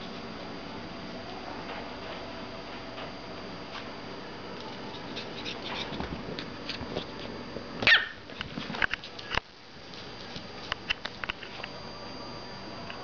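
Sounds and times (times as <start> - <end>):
puppy yipping: 7.8 - 8.2.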